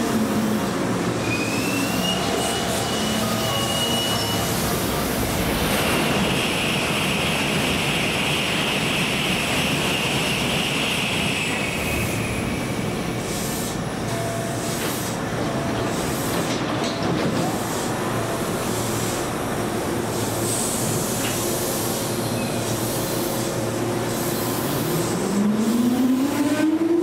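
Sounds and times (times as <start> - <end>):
train rushing rumble: 2.2 - 14.0.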